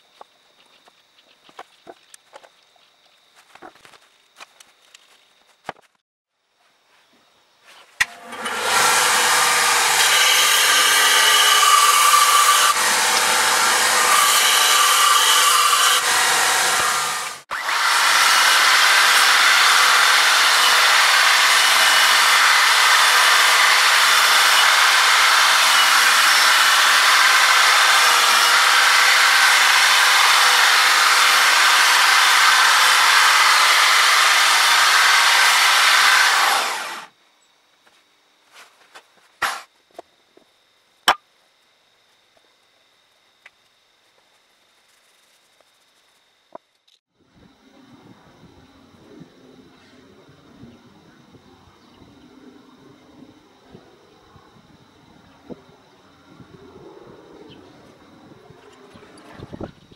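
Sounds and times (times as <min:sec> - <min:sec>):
belt sander sanding wood: 0:08.0 - 0:37.1
sanding disc grinding wood: 0:08.1 - 0:37.1.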